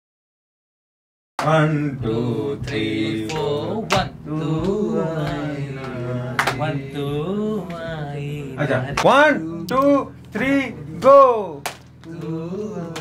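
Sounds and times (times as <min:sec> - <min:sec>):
sharp percussive hits: 0:01.4 - 0:06.9
man singing chant-like line: 0:01.4 - 0:11.4, 0:12.0 - 0:13.0.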